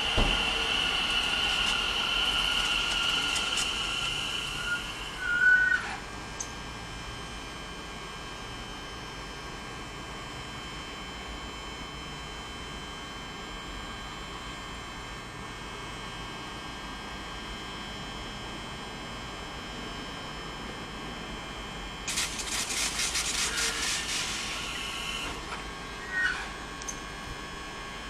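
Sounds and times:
electrical hum with whining tones: 0.0s - 28.0s
brief high squeal: 4.3s - 6.0s, 23.2s - 25.3s, 26.0s - 26.6s.

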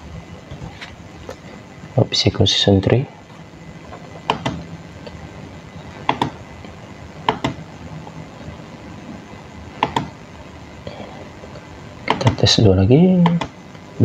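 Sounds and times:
steady background noise: 0.0s - 14.0s
computer mouse clicking: 6.0s - 6.4s, 7.3s - 7.6s, 9.8s - 10.1s.

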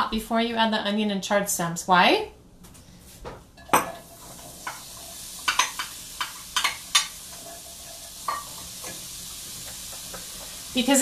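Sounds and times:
vegetables sizzling in oil: 3.7s - 11.0s.

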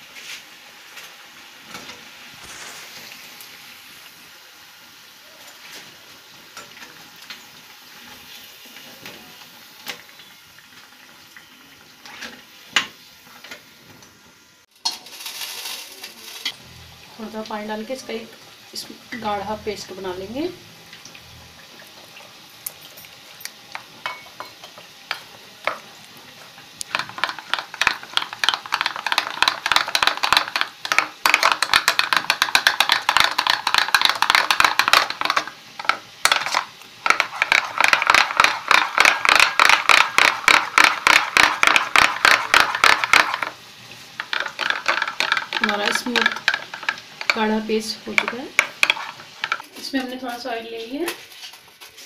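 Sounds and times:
spoon beating batter in bowl: 37.1s - 43.5s.

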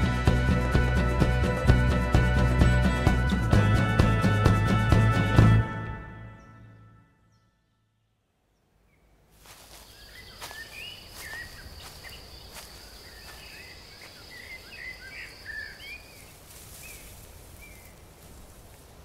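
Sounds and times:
small birds chirping: 7.3s - 18.6s.

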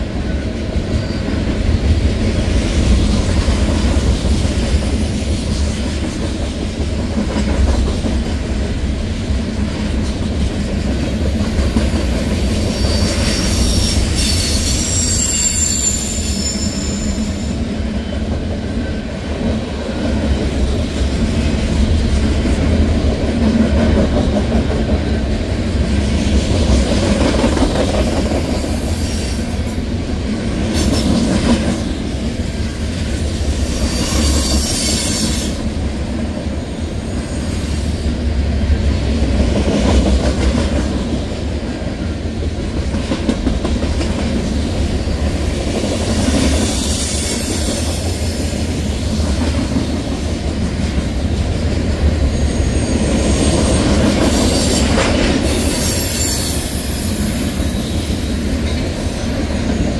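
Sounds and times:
train wheels rumbling on rail: 0.0s - 59.9s
faint high wheel squeal: 12.5s - 18.2s, 32.0s - 35.6s, 45.0s - 49.2s, 52.4s - 58.4s.

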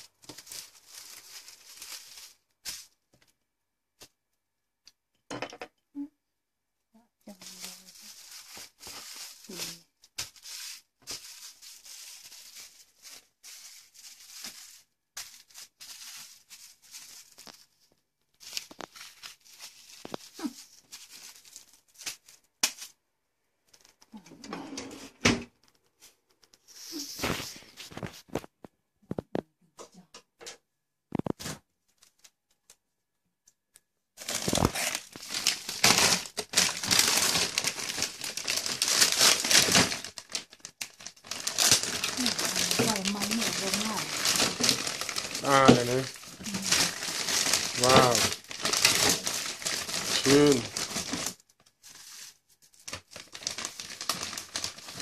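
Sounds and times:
plastic film crinkling: 0.0s - 3.4s, 7.3s - 23.0s, 25.6s - 29.4s, 31.1s - 32.8s, 34.2s - 55.0s
plastic freezer bags crinkling: 0.0s - 3.4s, 7.3s - 23.0s, 27.2s - 28.6s, 34.2s - 55.0s.

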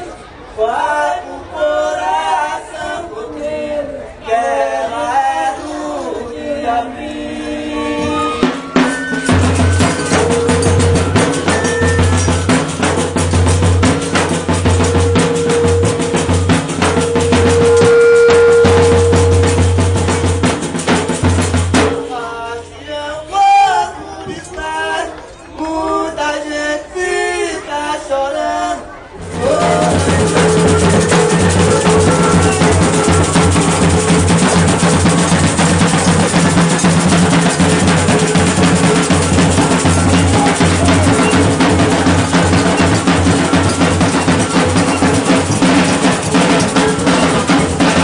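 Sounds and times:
men singing: 0.6s - 8.4s, 21.7s - 35.1s
frame drum beat: 8.4s - 22.5s, 29.2s - 48.0s
bass drum beat: 9.3s - 22.3s, 29.2s - 48.0s.

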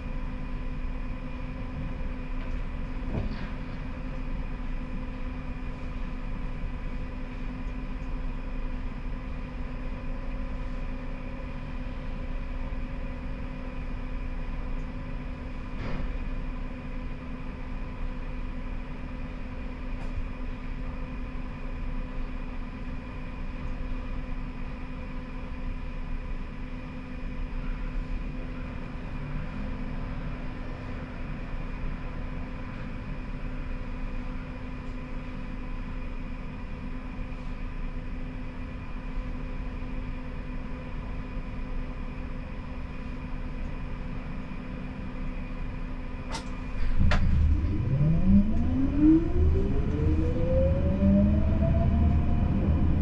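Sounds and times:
tram electrical hum: 0.0s - 53.0s
low rumble: 46.6s - 53.0s.

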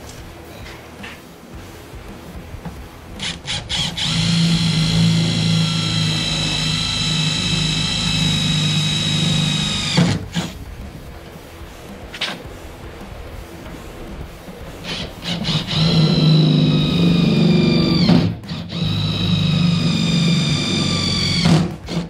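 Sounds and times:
cordless drill drilling sheet metal: 3.2s - 10.6s, 14.8s - 22.0s.

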